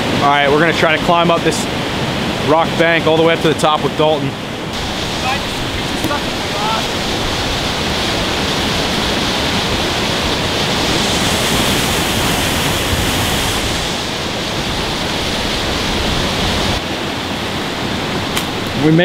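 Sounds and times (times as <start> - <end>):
waterfall rushing: 4.3 - 19.0.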